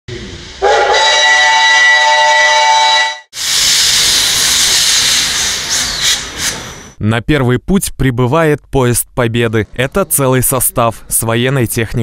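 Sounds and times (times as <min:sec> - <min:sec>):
steam whistle blast: 0:00.6 - 0:06.2
steam venting hiss: 0:03.4 - 0:07.0.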